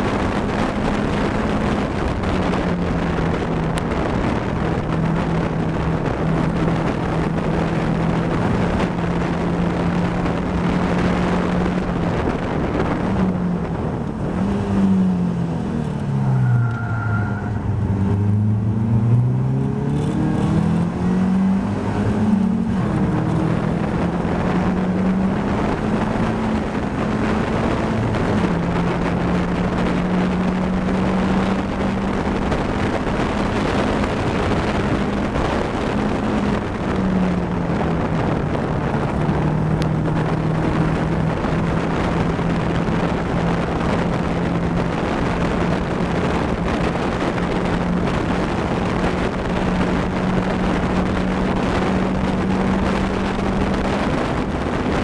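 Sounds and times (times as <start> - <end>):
race car engine revving: 0.0 - 55.0
wind rushing: 0.0 - 55.0.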